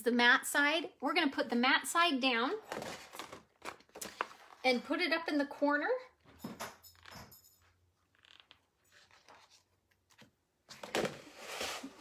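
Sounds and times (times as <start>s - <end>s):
vinyl sheet rustling and scraping: 11.1s - 12.0s.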